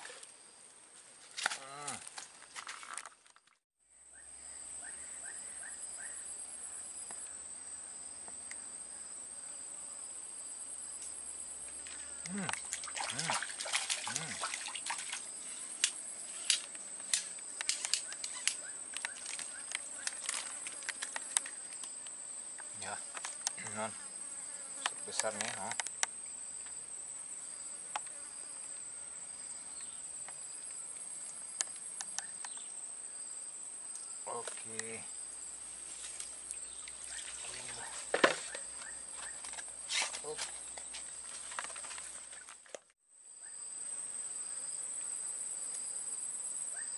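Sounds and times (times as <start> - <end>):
high-pitched insect trill: 4.1 - 42.5, 43.2 - 46.9
fish splashing at surface: 12.4 - 15.2.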